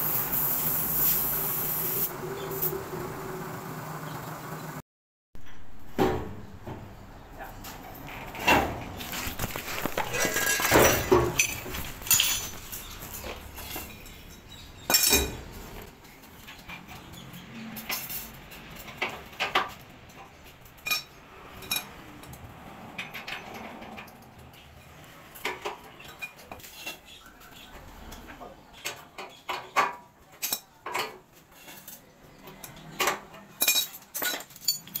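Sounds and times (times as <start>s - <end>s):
metal tools clinking on concrete: 7.5s - 27.1s, 28.8s - 35.0s.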